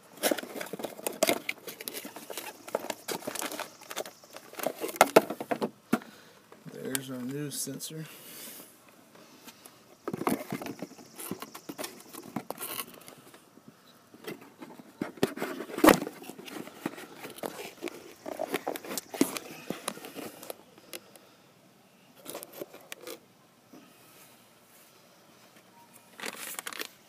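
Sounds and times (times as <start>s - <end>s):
handling small car parts: 0.1s - 7.4s, 14.2s - 21.1s, 22.2s - 23.2s, 26.0s - 27.0s.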